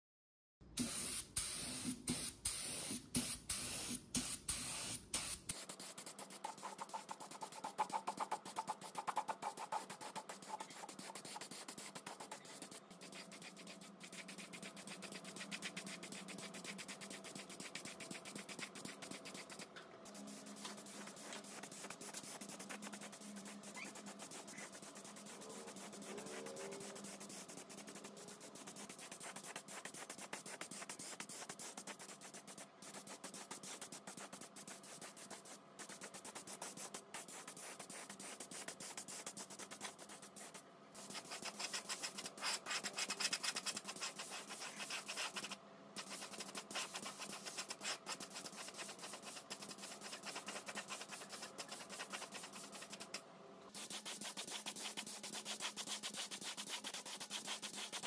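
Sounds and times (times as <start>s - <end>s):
faint steady hum: 42.9s - 57.0s.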